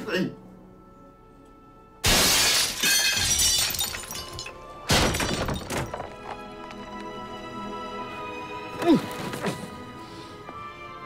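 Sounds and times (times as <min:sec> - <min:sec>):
music: 0:00.0 - 0:11.0
glass shattering: 0:02.0 - 0:06.1.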